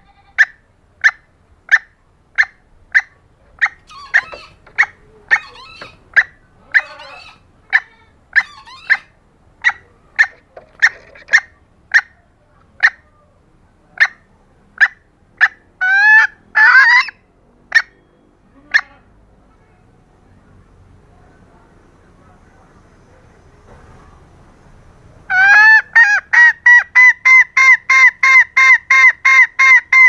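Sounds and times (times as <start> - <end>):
junglefowl hen calling: 0.0 - 13.2, 14.0 - 19.2, 25.3 - 30.0.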